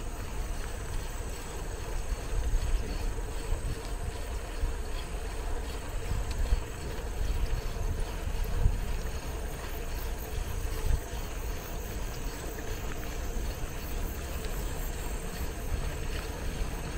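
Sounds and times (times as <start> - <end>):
bicycle tyre and road noise: 0.0 - 16.9
wind on microphone: 1.9 - 12.5.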